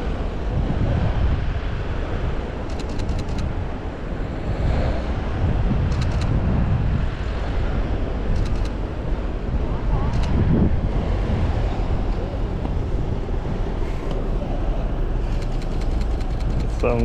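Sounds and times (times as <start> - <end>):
wind buffeting microphone: 0.0 - 17.0
rapid camera shutter clicks: 2.7 - 3.5, 8.4 - 8.8, 15.3 - 16.8.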